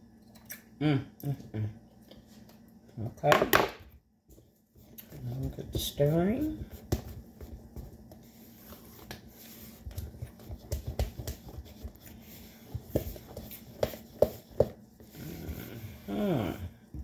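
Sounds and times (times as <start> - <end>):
batter stirred in plastic bowl: 5.1 - 15.2.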